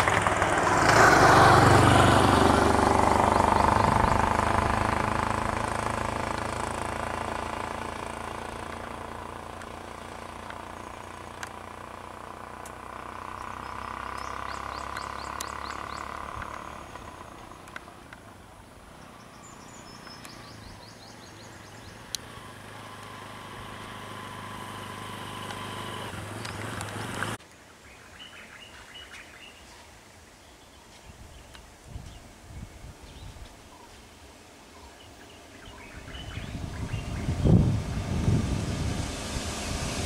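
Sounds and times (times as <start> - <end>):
motorcycle engine approaching: 0.0 - 27.4, 35.0 - 40.0
birds chirping: 13.1 - 24.8, 25.6 - 37.6.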